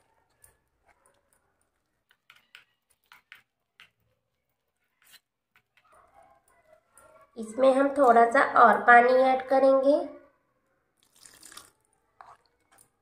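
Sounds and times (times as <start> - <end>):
spoon scraping bowl: 4.7 - 5.8, 11.5 - 13.0.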